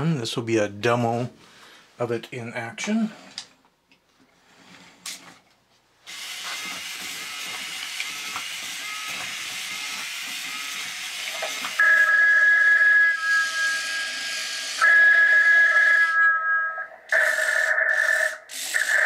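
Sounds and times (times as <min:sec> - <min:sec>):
robot servos hissing and ticking: 0:06.1 - 0:11.8, 0:18.1 - 0:19.0
electronic telephone bell ringing: 0:11.8 - 0:19.0.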